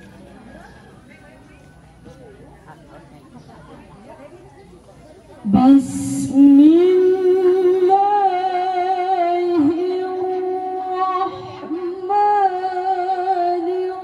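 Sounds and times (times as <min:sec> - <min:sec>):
woman chanting: 0:05.4 - 0:14.0.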